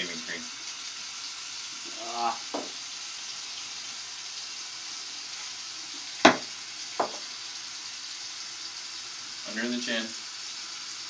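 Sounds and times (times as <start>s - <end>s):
tap running into sink: 1.8s - 2.8s, 6.0s - 7.3s
sharp knocks: 2.6s - 2.8s, 6.2s - 7.2s.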